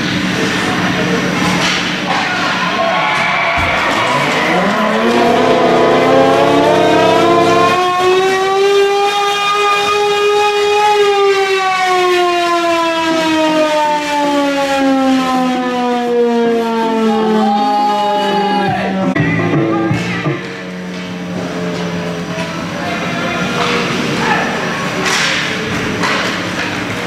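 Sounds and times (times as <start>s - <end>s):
goal siren winding: 3.7s - 11.0s
steady horn chord: 4.5s - 8.7s.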